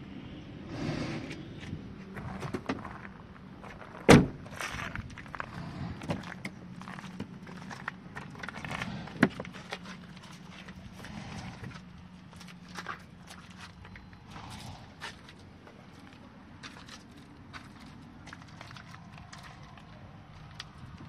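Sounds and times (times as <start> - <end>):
footsteps on gravel: 1.3 - 21.0
car door slamming: 4.1 - 4.4.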